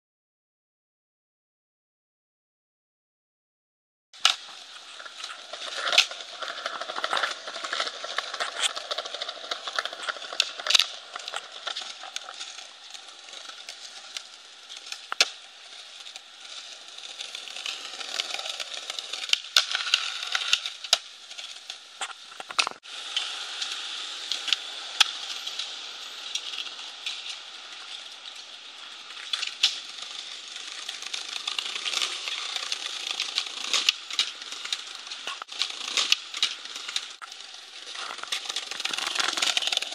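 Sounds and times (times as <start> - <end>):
skateboard tail clacks: 4.2 - 22.8, 29.2 - 39.9
skateboard wheels rolling on bricks: 4.2 - 39.9.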